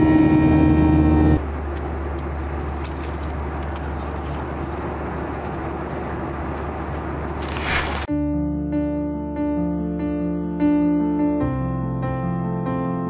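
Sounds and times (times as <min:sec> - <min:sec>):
vehicle interior rumble and hiss: 0:00.0 - 0:08.1.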